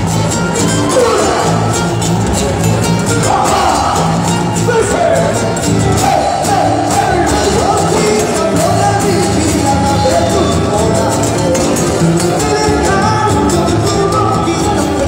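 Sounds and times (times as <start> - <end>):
band playing over pa: 0.0 - 15.0
group singing: 3.1 - 15.0.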